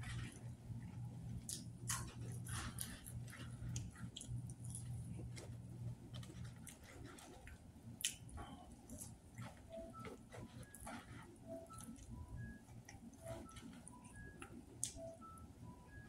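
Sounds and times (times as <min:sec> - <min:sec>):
fries being chewed: 0:00.0 - 0:16.0
low steady hum: 0:00.0 - 0:16.0.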